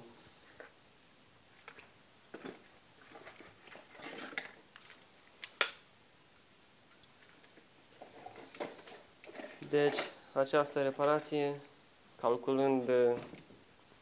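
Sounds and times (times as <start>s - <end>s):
cardboard and plastic bag rustling: 2.3s - 5.1s, 8.0s - 11.6s.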